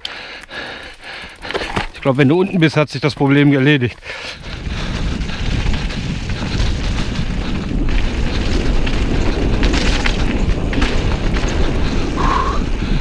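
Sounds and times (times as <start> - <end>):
bike clattering on rocks: 1.2 - 2.4, 7.8 - 11.8
tyres crunching over gravel: 1.3 - 12.3
wind rumble on microphone: 4.4 - 13.0.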